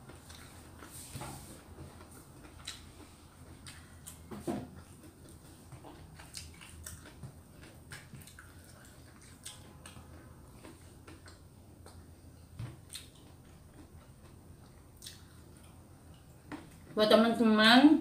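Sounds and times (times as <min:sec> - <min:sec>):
person chewing: 0:00.0 - 0:16.9.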